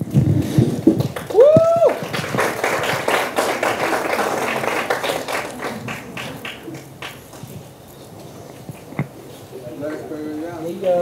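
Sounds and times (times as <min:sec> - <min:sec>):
audience clapping: 0:00.8 - 0:07.6
high cheer: 0:01.2 - 0:06.8.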